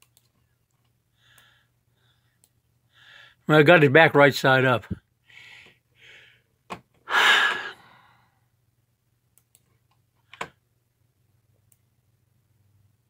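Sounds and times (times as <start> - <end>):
soft breaths: 0.4 - 3.5, 5.2 - 8.6
man sighing loudly: 7.1 - 8.1.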